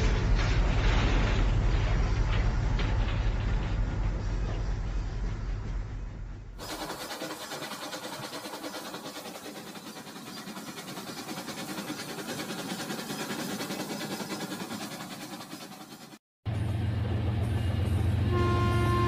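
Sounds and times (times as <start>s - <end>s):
toy train rattling whir: 6.6s - 16.2s.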